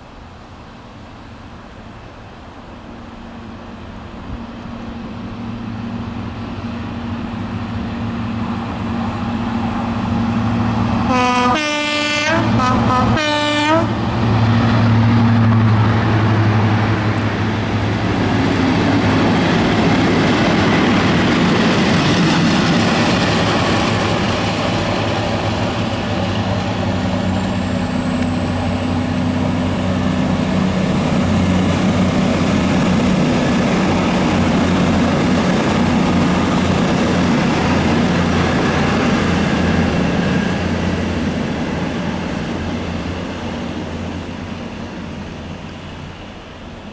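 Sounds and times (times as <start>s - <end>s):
diesel locomotives passing: 0.0s - 46.9s
locomotive horn blasts: 11.1s - 14.0s.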